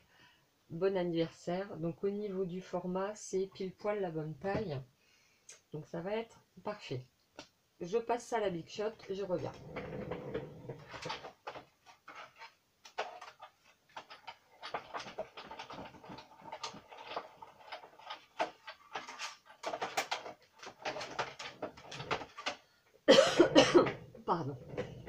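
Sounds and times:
small objects clicking and rustling: 0:09.5 - 0:22.8.

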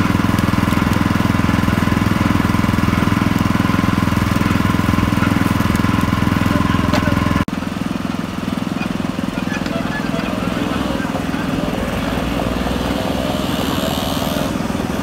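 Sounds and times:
cane stalks being crushed: 0:00.0 - 0:07.5
small engine chugging: 0:00.0 - 0:15.0.

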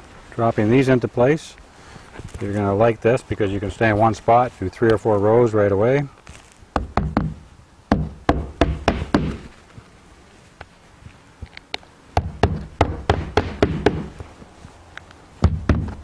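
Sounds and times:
hammer driving nails into shingles: 0:06.8 - 0:09.5, 0:12.2 - 0:14.1.

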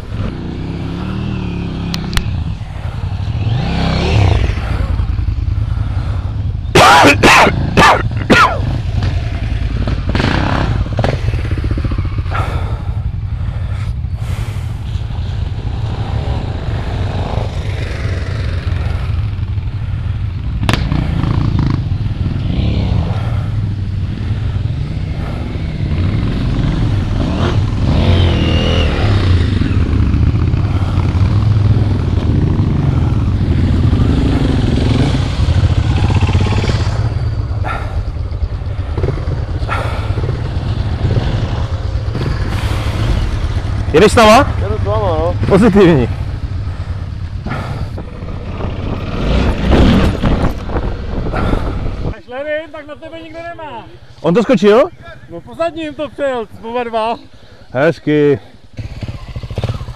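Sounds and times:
low engine rumble: 0:00.0 - 0:06.8
off-road motorcycles revving: 0:00.0 - 0:59.9.

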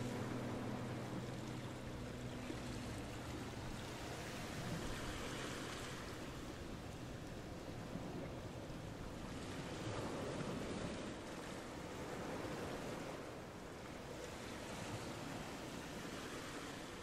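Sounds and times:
steady rushing noise: 0:00.0 - 0:10.4.

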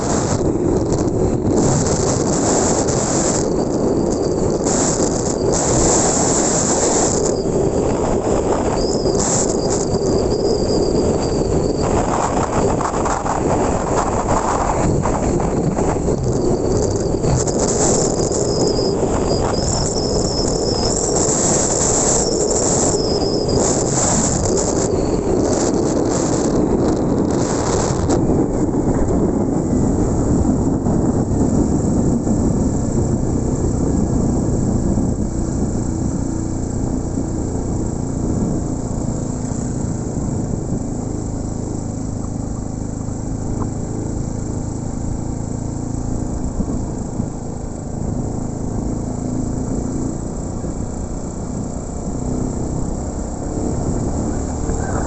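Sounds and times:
motorcycle engine cruising: 0:00.0 - 0:55.0
road and wind noise: 0:00.0 - 0:55.0.

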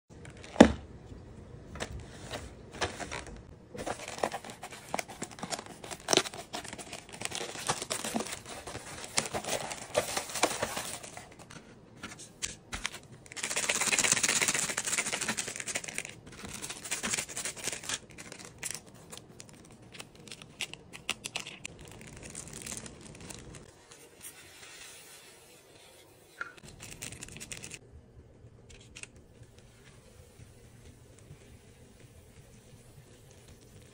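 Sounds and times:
plastic and paper crinkling: 0:01.8 - 0:24.9, 0:26.6 - 0:27.8
sachets being torn open: 0:13.3 - 0:23.7, 0:26.6 - 0:27.8.

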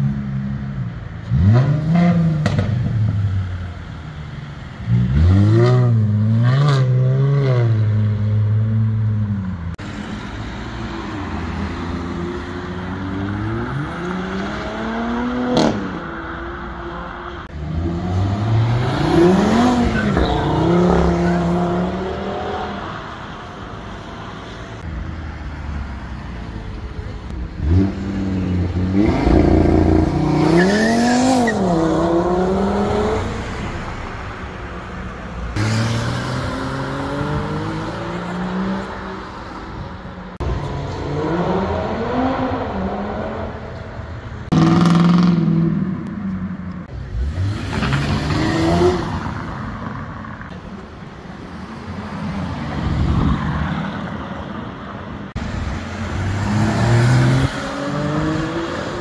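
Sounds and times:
cars accelerating hard: 0:09.7 - 0:16.7, 0:17.4 - 0:23.1, 0:27.6 - 0:33.8, 0:35.5 - 0:46.2, 0:46.8 - 0:50.4, 0:55.3 - 0:59.0.

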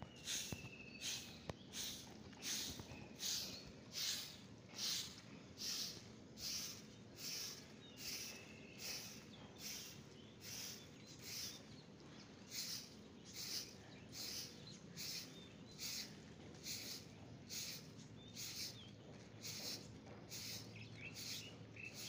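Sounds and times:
broom sweeping grit on concrete: 0:00.2 - 0:11.5, 0:19.4 - 0:20.6.

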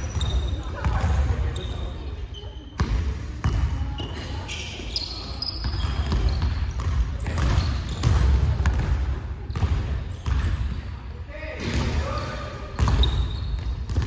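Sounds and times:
players' voices: 0:00.0 - 0:13.4
basketballs bouncing on wooden floor: 0:02.8 - 0:04.2, 0:05.6 - 0:10.8, 0:12.8 - 0:14.0
shoes squeaking on floor: 0:03.9 - 0:08.6, 0:12.8 - 0:13.7.

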